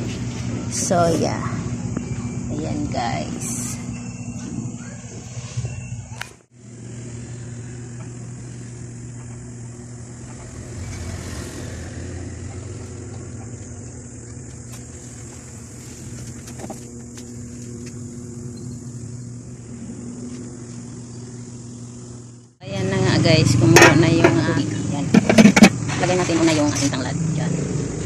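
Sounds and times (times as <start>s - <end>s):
low mechanical hum: 0.0s - 28.0s
constant hiss: 6.4s - 27.0s.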